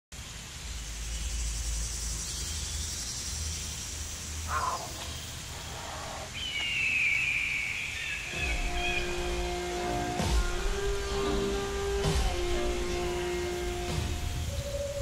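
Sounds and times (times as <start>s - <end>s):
high steady hiss: 0.1s - 15.0s
low steady drone: 8.2s - 15.0s.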